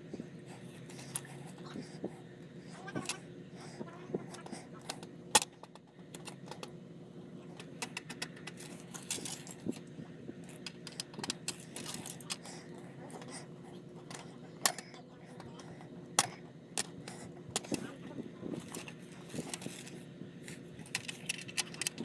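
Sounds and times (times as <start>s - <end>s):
small parts clicking and rattling: 4.3s - 6.8s, 7.6s - 22.0s.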